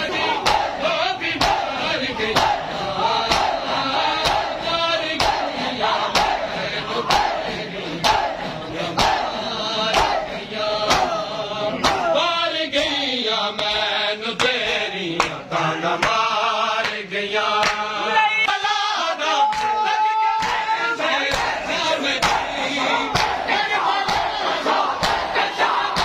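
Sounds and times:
men chanting in unison: 0.0 - 26.0
hands slapping bare chests: 3.2 - 3.6, 4.2 - 4.6, 5.2 - 6.4, 9.0 - 9.3, 9.9 - 10.2, 10.8 - 11.2, 17.6 - 17.9, 21.3 - 21.6, 22.2 - 22.5, 23.1 - 23.4, 24.0 - 24.4, 25.0 - 25.3.

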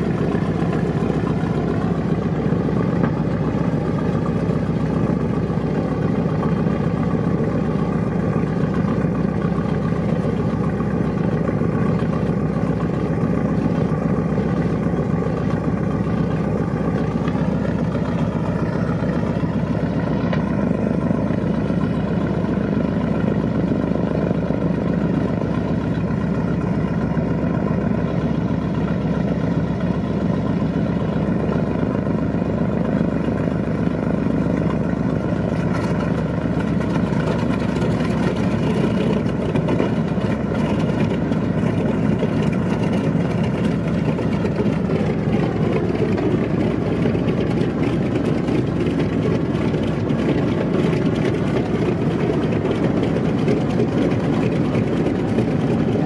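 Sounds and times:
radial aircraft engines running: 0.0 - 56.0.

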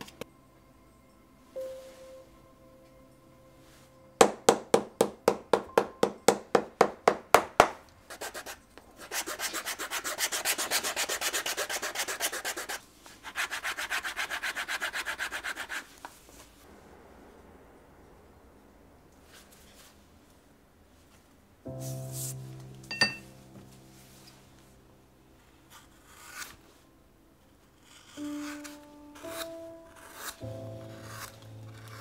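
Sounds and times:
fast back-and-forth rubbing: 8.1 - 16.0.

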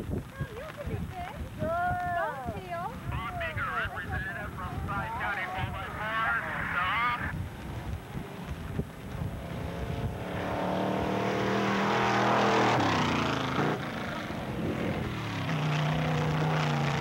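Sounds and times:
drag vehicle engine running hard: 9.1 - 17.0.

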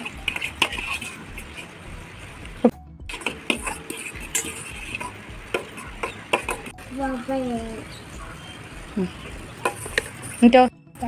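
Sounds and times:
fork beating eggs in metal bowl: 0.0 - 2.4, 3.1 - 6.7, 9.2 - 10.6.

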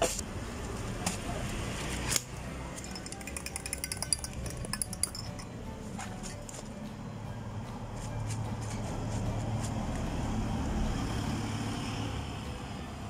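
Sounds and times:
background music: 2.2 - 10.8
light glass clinks: 2.8 - 5.6.

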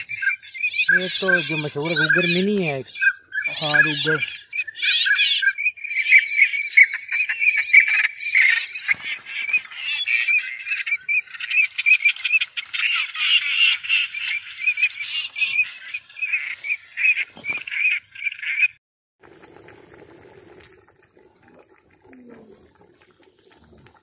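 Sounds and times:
rapid high chirping chorus: 0.0 - 18.7.

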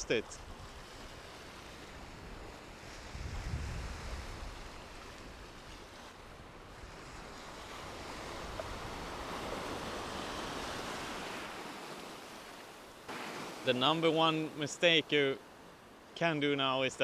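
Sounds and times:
small waves breaking: 0.0 - 16.3
wind rumbling on microphone: 0.4 - 11.6.

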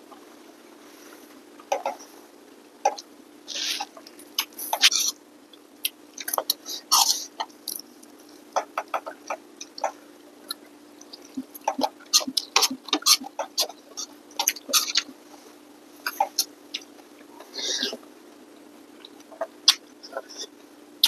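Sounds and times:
faint steady hum: 0.0 - 21.0
slurping and chewing noodles: 8.6 - 15.3.

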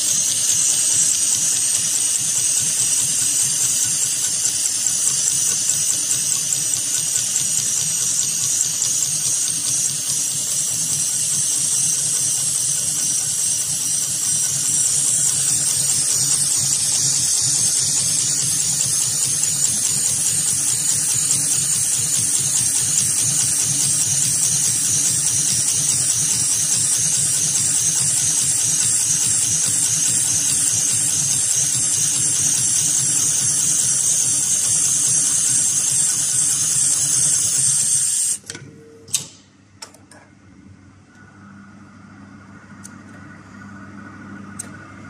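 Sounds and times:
sewing machine whirring: 0.0 - 38.5.

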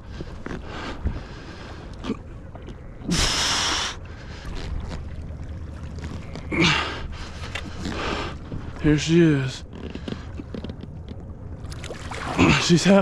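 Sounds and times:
wind and water rumble: 0.0 - 13.0
man breathing heavily and grunting: 6.5 - 8.4.

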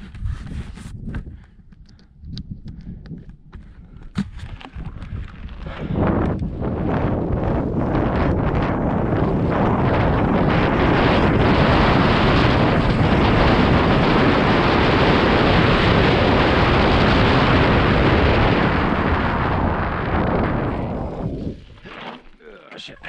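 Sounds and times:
wind rushing over microphone: 0.0 - 21.9
tyres rolling on gravel trail: 4.2 - 22.5.

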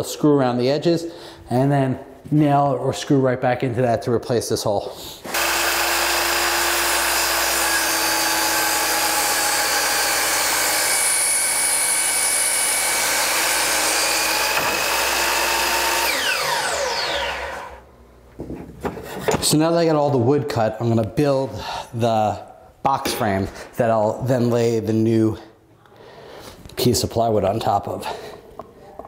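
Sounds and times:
miter saw cutting wood: 5.2 - 17.9
saw motor spinning down: 5.3 - 17.9.

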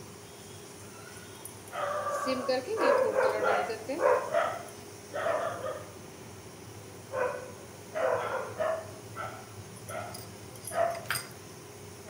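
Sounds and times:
dog barking: 1.7 - 6.0, 7.1 - 11.1.

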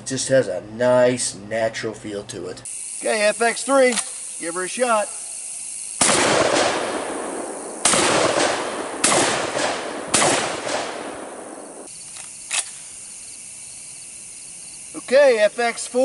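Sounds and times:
gunshot echo: 6.0 - 11.9
shotgun shots: 6.0 - 11.9.

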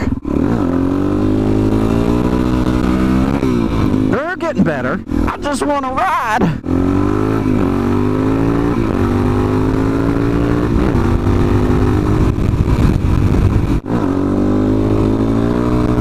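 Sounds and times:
motorcycle engine accelerating: 0.0 - 16.0.

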